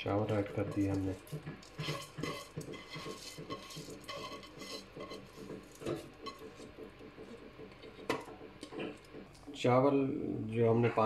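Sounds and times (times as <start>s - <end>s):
rice scraped from metal bowl: 0.3s - 6.8s.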